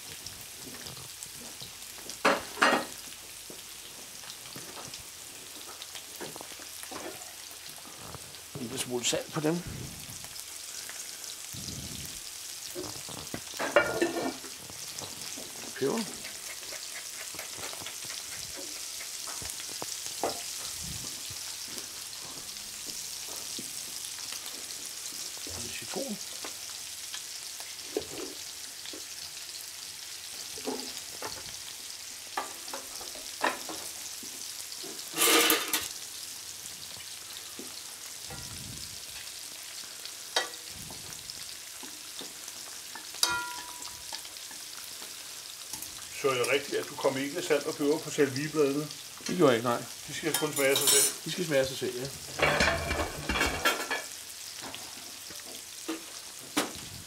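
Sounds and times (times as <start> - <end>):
food sizzling in a pan: 0.0 - 57.0
kitchen utensils knocking and clicking: 13.6 - 14.4, 43.2 - 43.8, 50.3 - 51.2, 52.4 - 54.0
utensils clattering: 13.6 - 14.4, 35.1 - 35.9, 50.2 - 51.2, 52.4 - 54.1.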